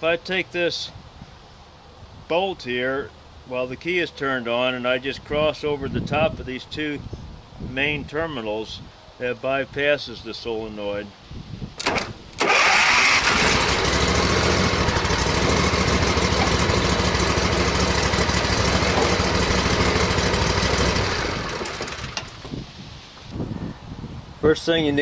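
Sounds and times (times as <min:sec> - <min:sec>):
starter solenoid clicking: 0:11.8 - 0:22.5
lawn mower engine cranking and running: 0:11.8 - 0:22.6.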